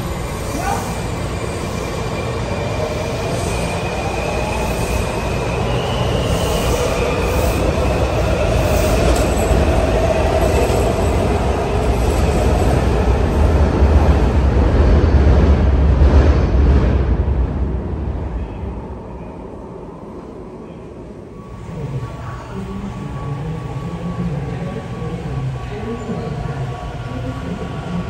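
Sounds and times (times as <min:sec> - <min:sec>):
train wheels rumbling on rails: 0:00.0 - 0:18.6.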